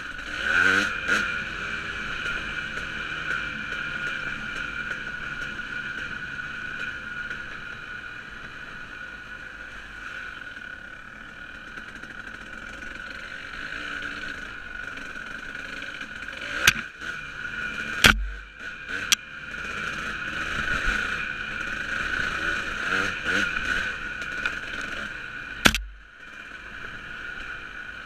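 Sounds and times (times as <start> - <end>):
dirt bike engine running: 0.0 - 28.0
low thump: 18.0 - 18.4
sharp knocks: 18.0 - 18.5, 25.6 - 26.0.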